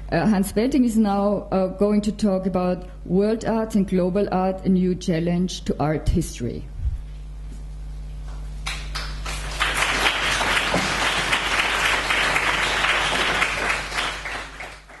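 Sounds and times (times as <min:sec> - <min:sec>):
audience applauding: 0:08.7 - 0:15.0.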